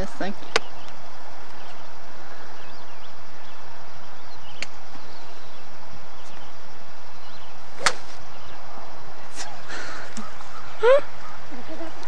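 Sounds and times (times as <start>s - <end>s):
steady background hiss: 0.0s - 12.0s
faint bird chirps: 0.3s - 7.6s, 9.8s - 12.0s
golf club striking ball: 7.8s - 8.2s.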